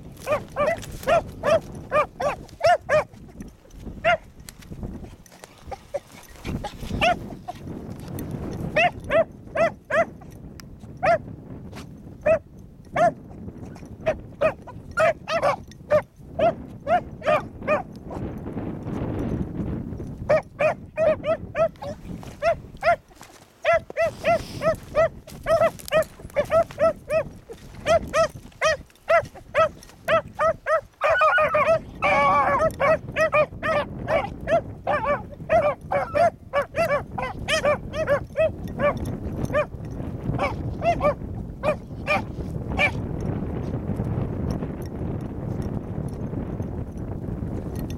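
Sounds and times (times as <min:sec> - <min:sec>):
wind rumble on microphone: 0:00.0 - 0:47.9
dogs baying: 0:00.2 - 0:03.4, 0:05.2 - 0:07.6, 0:08.7 - 0:10.2, 0:13.8 - 0:17.9, 0:20.3 - 0:39.8, 0:40.4 - 0:43.0.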